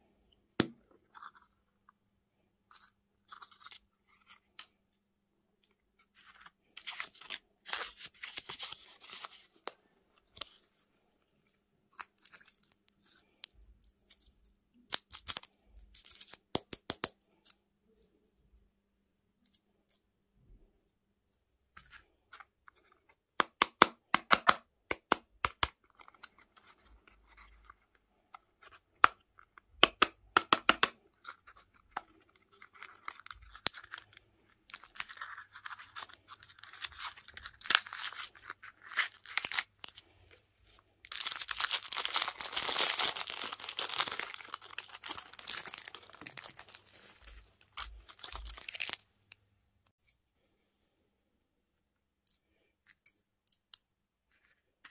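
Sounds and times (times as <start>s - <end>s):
packaging rustling and tearing: 41.0s - 49.0s.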